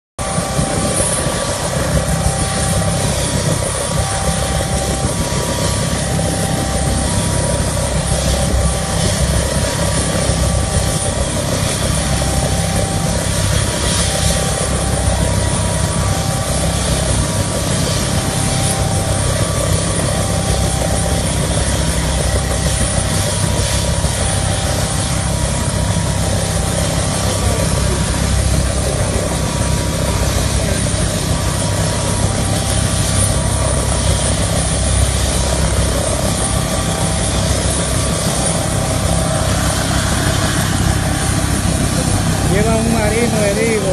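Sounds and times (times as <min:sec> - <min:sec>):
helicopter turbine and rotor: 0:00.2 - 0:43.9.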